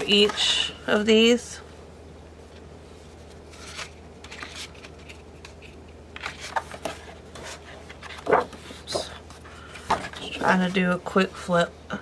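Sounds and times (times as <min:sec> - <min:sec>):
cardstock pages rustling: 0:03.1 - 0:10.8.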